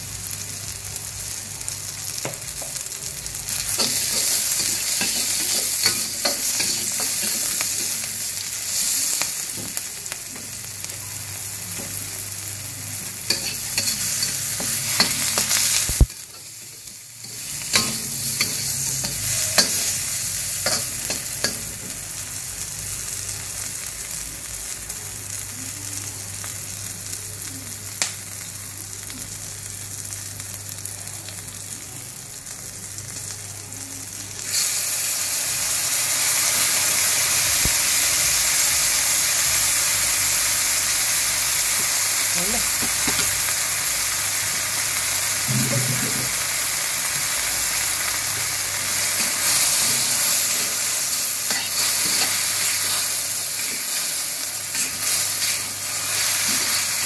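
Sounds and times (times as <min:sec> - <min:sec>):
vegetables sizzling in oil: 0:00.0 - 0:57.0
metal spatula scraping wok: 0:13.2 - 0:16.6, 0:17.2 - 0:21.8, 0:49.2 - 0:57.0.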